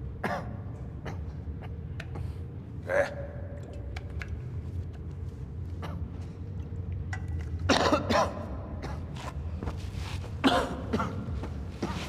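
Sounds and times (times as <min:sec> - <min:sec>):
low steady hum: 0:00.0 - 0:12.0
man coughing: 0:07.7 - 0:09.2, 0:10.4 - 0:12.0.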